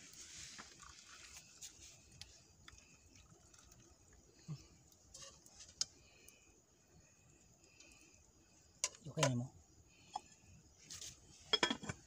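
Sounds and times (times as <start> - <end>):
water trickling into plastic cup: 2.2 - 4.1.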